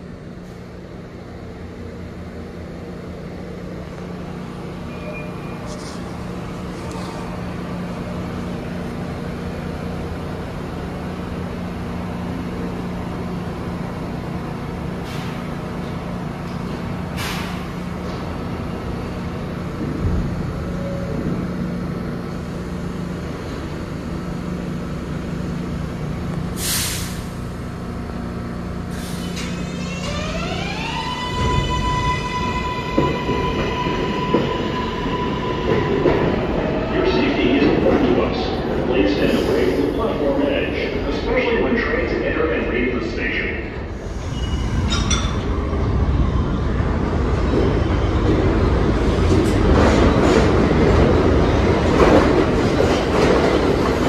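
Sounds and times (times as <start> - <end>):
air brake hisses: 17.2 - 17.7, 26.6 - 27.4.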